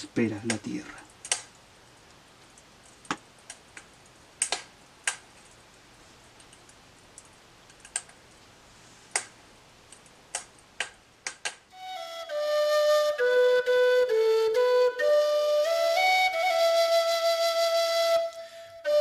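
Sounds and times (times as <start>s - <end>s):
faint hiss: 0.0s - 19.0s
sharp clicks: 0.4s - 5.8s, 6.4s - 8.5s, 9.9s - 11.7s.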